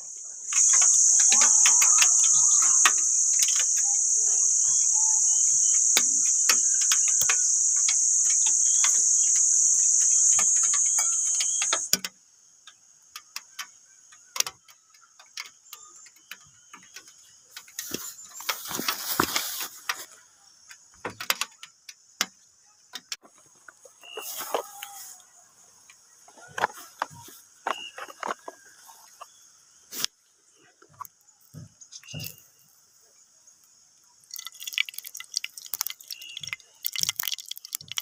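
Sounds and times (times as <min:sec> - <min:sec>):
high-pitched insect drone: 0:00.0 - 0:12.1, 0:34.3 - 0:38.0
campfire crackling: 0:00.1 - 0:12.0, 0:34.2 - 0:38.0
hiss of flaring fire: 0:00.3 - 0:11.9.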